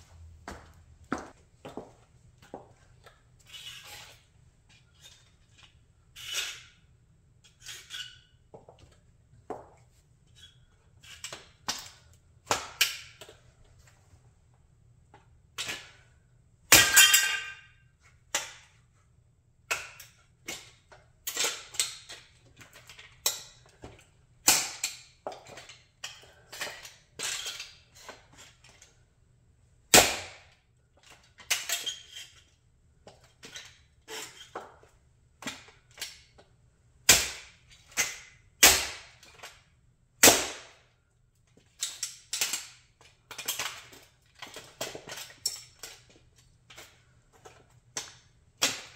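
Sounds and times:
heel clicks on concrete: 0:00.4 - 0:02.7.

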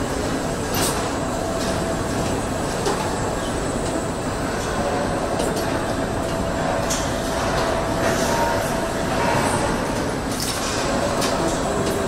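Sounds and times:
machinery rumble and hum: 0:00.0 - 0:12.0.

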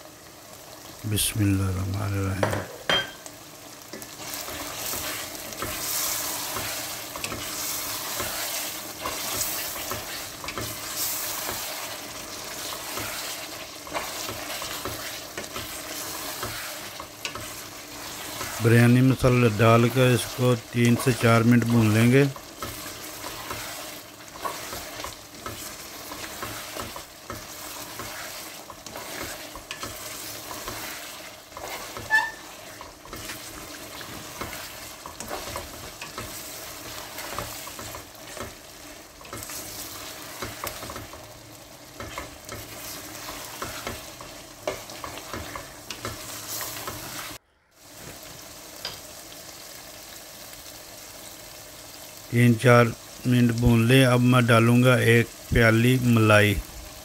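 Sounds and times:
meat sizzling in oil: 0:00.0 - 0:57.0
spatula scraping a metal pot: 0:22.6 - 0:38.4.

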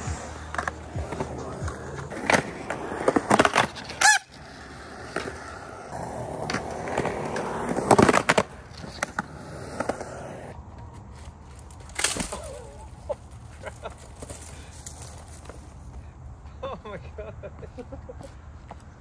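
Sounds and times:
skateboard wheels rolling on concrete: 0:00.0 - 0:19.0.

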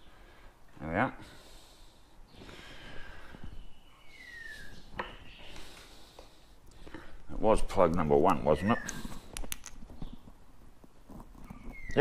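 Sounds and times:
bird whistled call: 0:03.7 - 0:05.5, 0:11.6 - 0:12.0.

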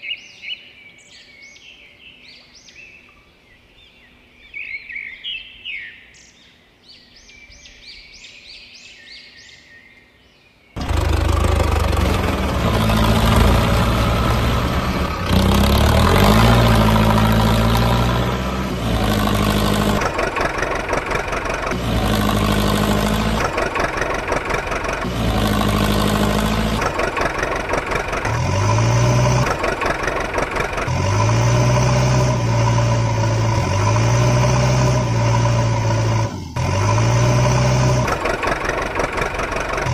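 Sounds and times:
truck engine revving: 0:10.8 - 0:39.9.

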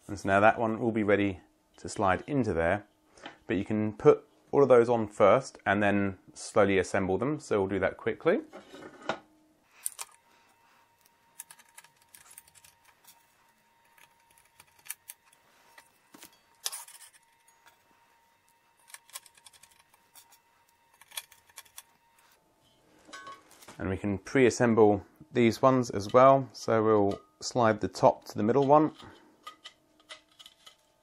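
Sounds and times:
metallic clicks and scrapes: 0:11.0 - 0:17.8, 0:18.7 - 0:22.4, 0:28.2 - 0:31.0.

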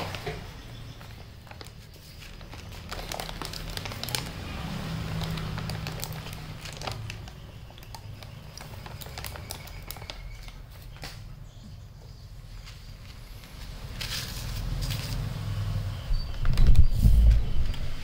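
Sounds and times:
cat crunching dry kibble: 0:01.4 - 0:10.6
pellets clicking in plastic tub: 0:01.4 - 0:11.2.

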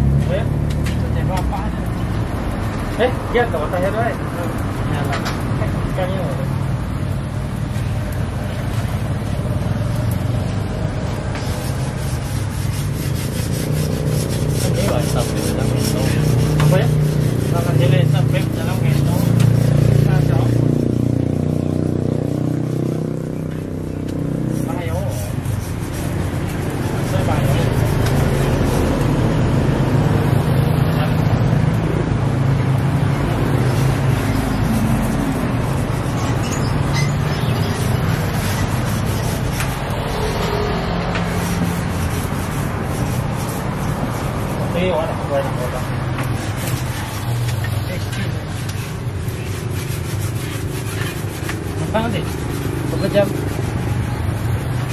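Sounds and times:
metal spatula scraping griddle: 0:07.6 - 0:20.5, 0:24.4 - 0:29.3, 0:33.2 - 0:54.9.

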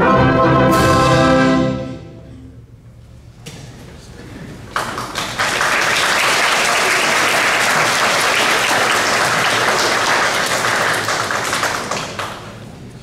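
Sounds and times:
audience applause: 0:04.7 - 0:12.8.

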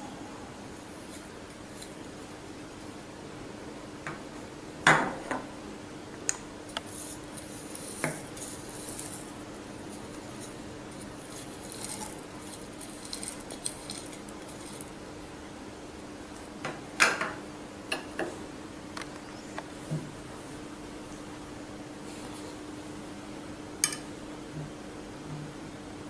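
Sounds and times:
steady low hum: 0:00.0 - 0:26.0
utensils clinking against glass jar: 0:10.2 - 0:14.9.

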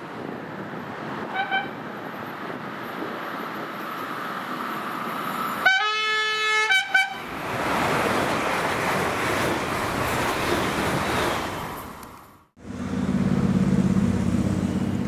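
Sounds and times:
train horn: 0:01.3 - 0:01.7, 0:05.6 - 0:07.2
train rumble: 0:06.6 - 0:15.0.

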